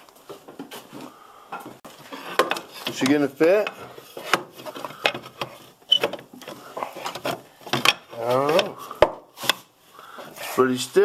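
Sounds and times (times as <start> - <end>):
person speaking: 2.7 - 4.0, 8.0 - 9.0, 10.3 - 11.0.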